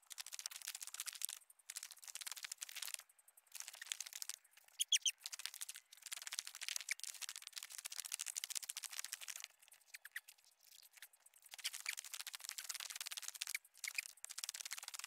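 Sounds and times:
bird chirp: 2.8s - 7.4s, 8.8s - 14.8s.

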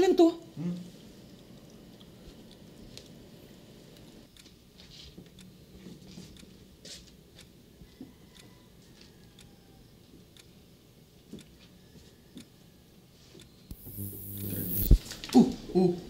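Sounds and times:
faint regular ticking: 4.0s - 4.6s, 5.2s - 5.8s, 6.4s - 8.5s, 9.1s - 9.6s, 10.3s - 10.6s, 13.4s - 15.0s.

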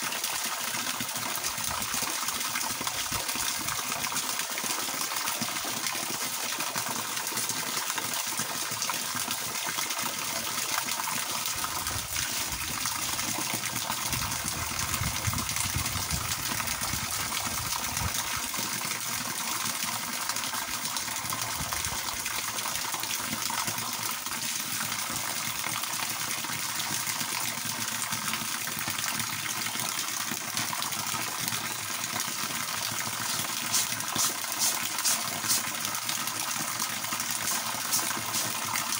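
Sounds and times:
water pouring from hose: 0.0s - 38.9s
water splashing: 33.0s - 36.2s, 37.1s - 38.9s.

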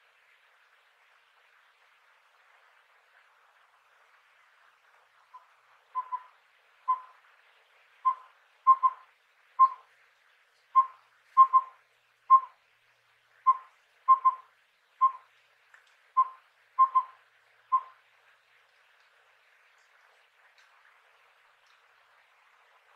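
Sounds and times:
owl whistled four-note call: 5.4s - 6.3s, 6.9s - 7.2s, 8.0s - 9.0s, 9.6s - 9.9s, 10.8s - 12.6s, 13.5s - 15.2s, 16.2s - 18.0s.

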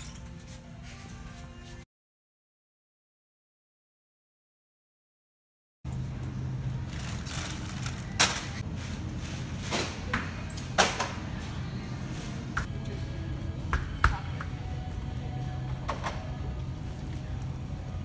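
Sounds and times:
supermarket low hum: 0.0s - 1.9s, 5.9s - 18.0s.

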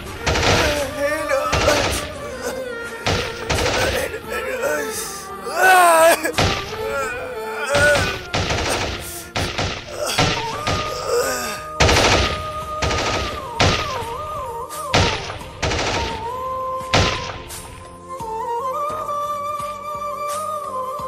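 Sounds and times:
rifle shots: 0.0s - 2.2s, 11.8s - 14.0s, 15.0s - 16.3s
background music: 0.0s - 21.0s.

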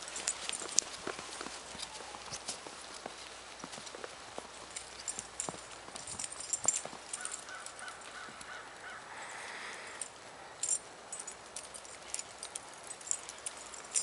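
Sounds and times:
dogs walking in snow: 0.0s - 9.8s.

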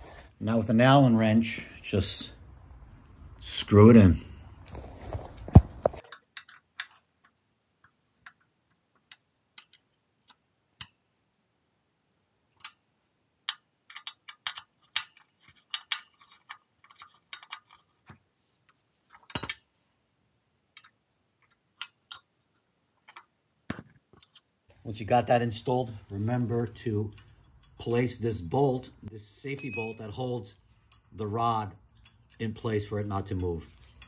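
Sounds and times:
wrench clicking on metal bolts: 13.4s - 17.8s, 27.1s - 28.2s, 30.8s - 34.0s.

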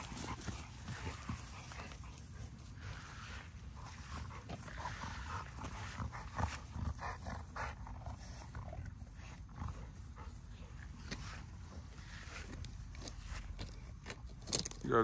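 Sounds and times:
dogs growling while playing: 0.0s - 12.2s.

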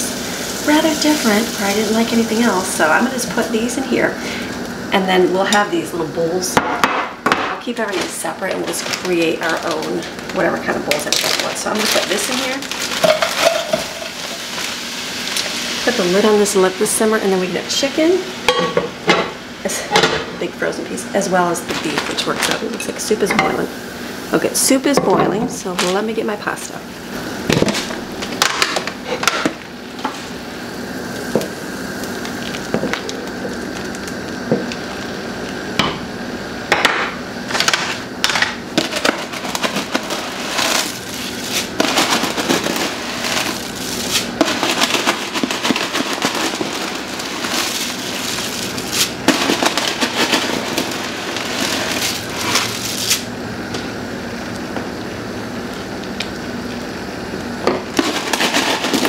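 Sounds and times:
plastic bag crinkling: 7.6s - 16.0s, 21.6s - 22.8s, 38.8s - 53.3s, 57.9s - 59.0s
dry pasta shaken out: 7.8s - 14.8s, 38.8s - 53.2s, 58.0s - 59.0s.

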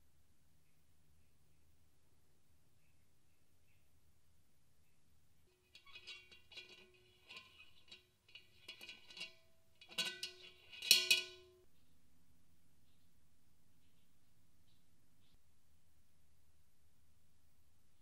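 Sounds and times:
metal handle clinking on pot: 5.7s - 11.6s.

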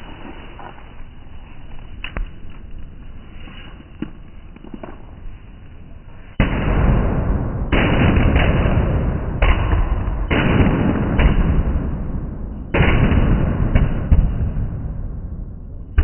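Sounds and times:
fireworks bangs with crackling hiss: 6.2s - 16.0s
sharp firework cracks: 6.4s - 15.1s.

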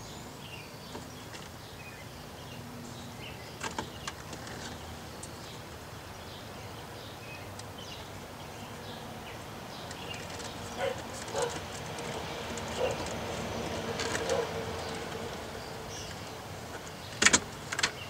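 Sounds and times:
sharp plastic clicks: 16.8s - 18.0s.

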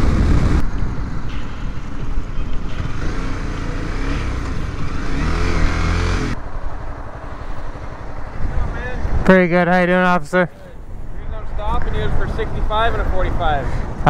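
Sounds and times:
wind rush on microphone: 0.0s - 2.8s
motorcycle engine: 1.3s - 9.0s.

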